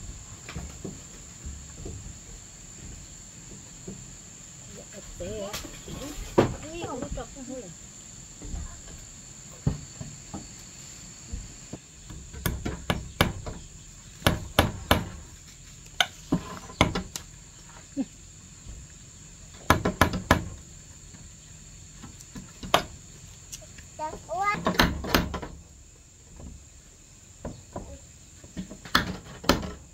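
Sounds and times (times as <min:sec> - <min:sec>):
high insect trill: 0:00.0 - 0:29.9
hammer striking wooden poles: 0:12.3 - 0:13.6, 0:14.2 - 0:15.2, 0:19.6 - 0:20.6.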